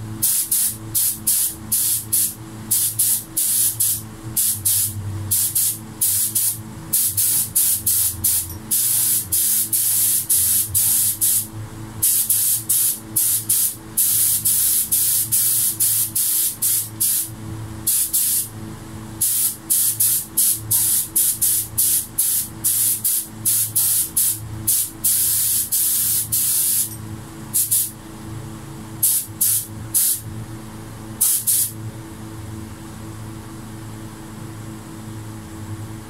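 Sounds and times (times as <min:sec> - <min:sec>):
spray gun hissing in spurts: 0:00.2 - 0:17.3, 0:17.9 - 0:18.5, 0:19.2 - 0:27.0, 0:27.6 - 0:28.0, 0:29.0 - 0:30.2, 0:31.2 - 0:31.7.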